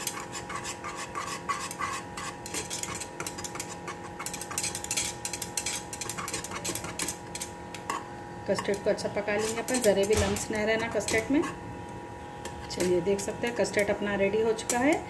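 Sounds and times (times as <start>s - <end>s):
whisk clicking and scraping pan: 0.0s - 11.6s.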